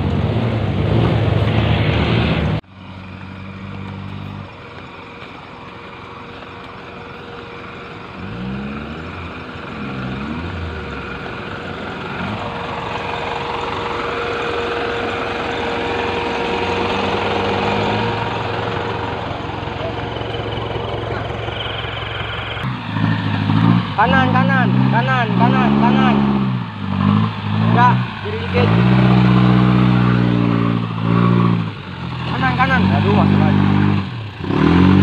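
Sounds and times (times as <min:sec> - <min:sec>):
off-road vehicle engine revving: 0:00.0 - 0:35.0.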